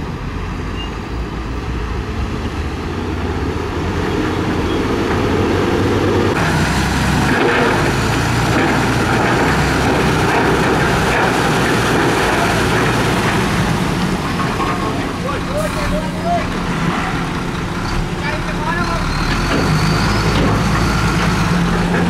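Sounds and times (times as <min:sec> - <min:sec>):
diesel truck engines running: 0:00.0 - 0:22.0
dirt and rock sliding: 0:06.4 - 0:17.2.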